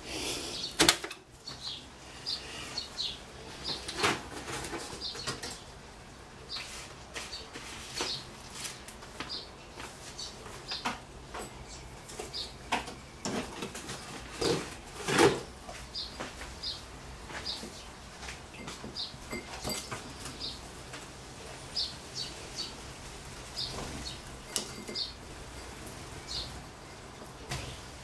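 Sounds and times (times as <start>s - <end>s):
blackbirds chirping: 0.0s - 5.8s, 9.2s - 14.7s, 15.7s - 20.7s, 21.6s - 26.9s.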